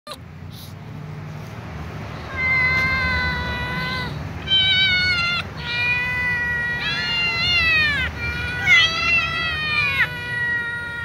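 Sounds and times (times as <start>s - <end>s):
cats meowing loudly: 2.2s - 11.0s.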